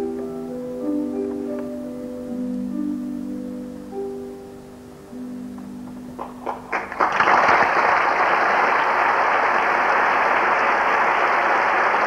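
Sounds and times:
audience applause: 6.2 - 12.0.

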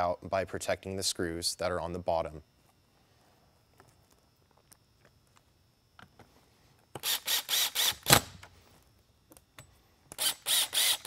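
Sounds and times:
cordless drill driving screws: 7.0 - 8.3, 10.2 - 11.0.

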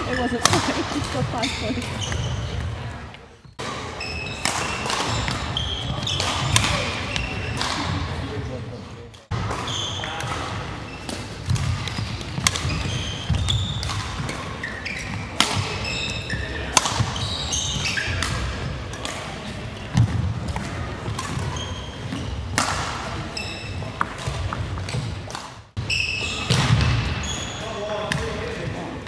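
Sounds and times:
shoes squeaking on wooden floor: 0.0 - 8.5, 9.5 - 18.2, 21.0 - 22.5, 23.2 - 25.1, 25.8 - 28.0
racket hitting shuttlecock: 0.1 - 2.7, 3.6 - 8.0, 9.3 - 23.2, 23.9 - 25.6.

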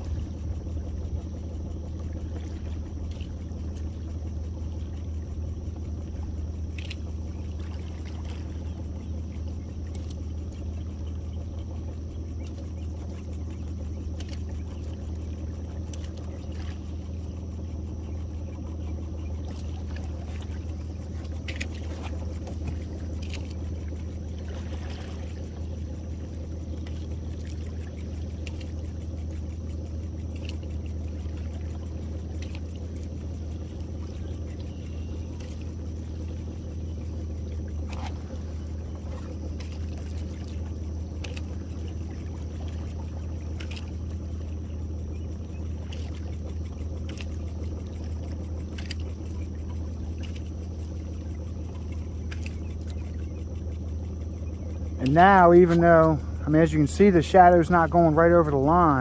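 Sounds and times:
outboard motor running: 0.0 - 59.0.

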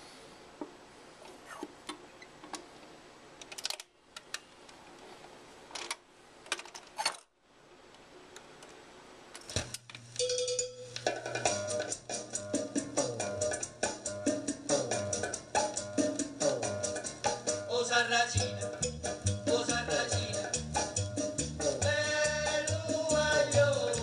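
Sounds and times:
music from record player: 10.5 - 24.0.

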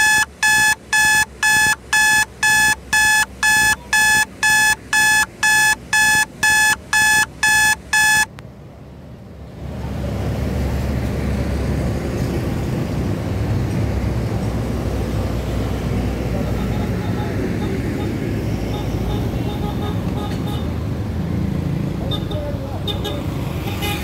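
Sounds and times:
rapid electronic beeping: 0.0 - 8.3
low rumble of road noise: 0.0 - 24.0.

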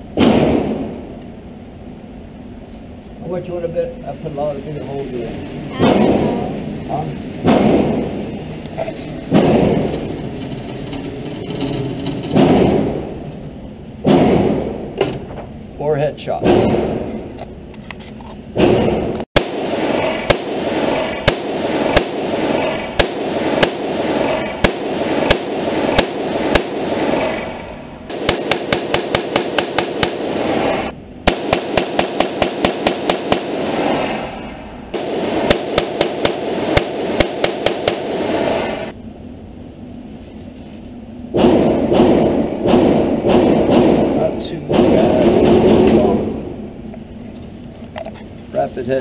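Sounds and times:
rimfire gunshots: 0.0 - 1.2, 4.2 - 15.0, 16.4 - 17.3, 18.6 - 39.0, 41.3 - 46.8.

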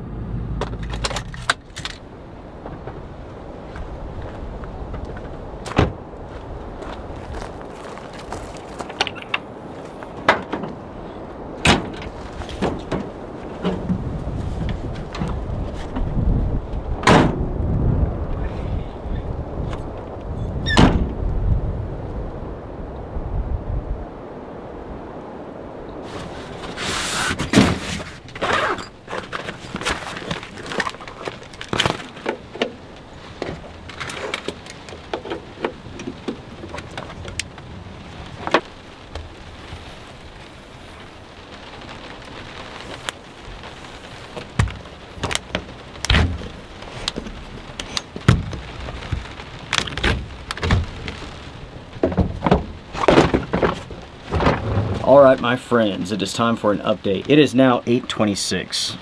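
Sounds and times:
rain hissing on truck: 1.6 - 23.2, 24.1 - 59.0
window being handled: 52.0 - 55.1
gear knocking and rattling: 52.0 - 55.3.

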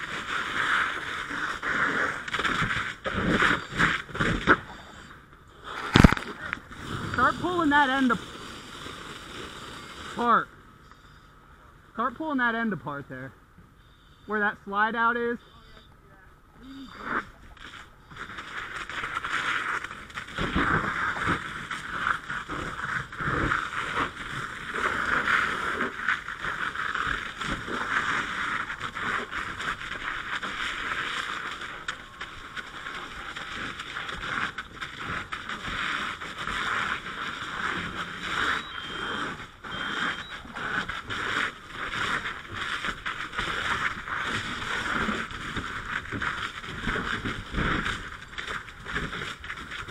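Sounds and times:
short high beeps: 15.3 - 16.0, 38.4 - 40.5.

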